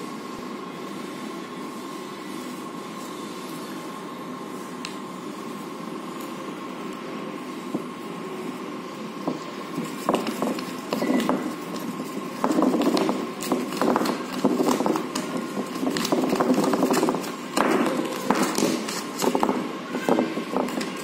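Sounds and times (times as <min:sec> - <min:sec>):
paper rustling and crinkling: 0:09.8 - 0:19.6.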